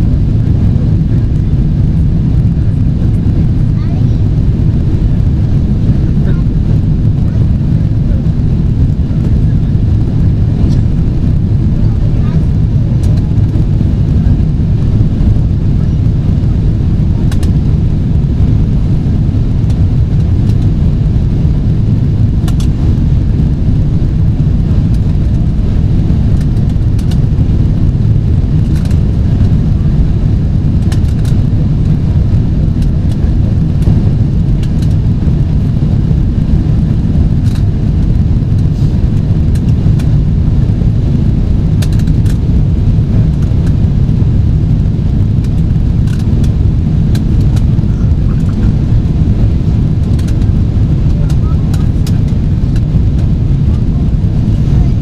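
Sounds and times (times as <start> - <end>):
aircraft cabin rumble: 0.0 - 55.0.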